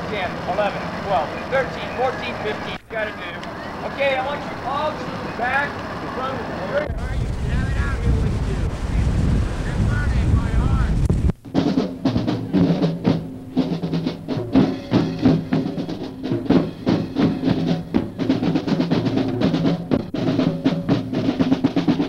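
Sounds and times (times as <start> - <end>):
marching band music: 0.0 - 22.0
snare and bass drums: 6.8 - 22.0.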